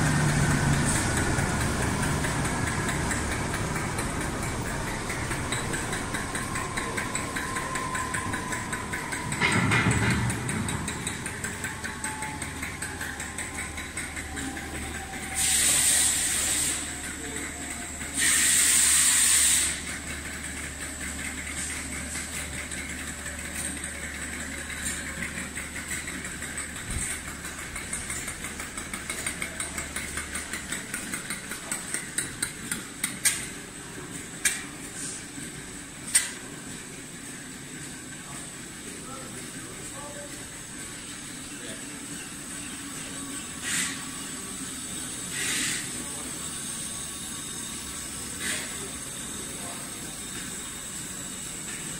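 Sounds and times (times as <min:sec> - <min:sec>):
diesel engine shutting down: 0:00.0 - 0:51.9
hissing air bursts: 0:15.4 - 0:16.9, 0:18.2 - 0:20.0, 0:43.6 - 0:44.1, 0:45.3 - 0:45.9.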